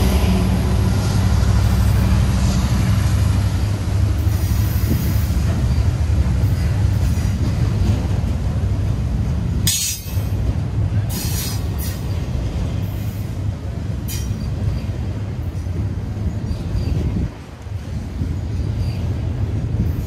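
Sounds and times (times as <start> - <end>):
freight train rumbling past: 0.0 - 20.0
train wheels squealing: 4.2 - 7.3, 14.1 - 15.1, 16.3 - 17.2, 18.4 - 20.0.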